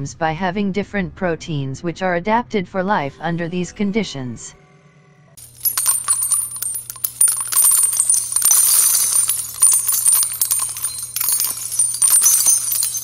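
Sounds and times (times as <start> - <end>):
metallic jingling and clinking: 5.4 - 13.0.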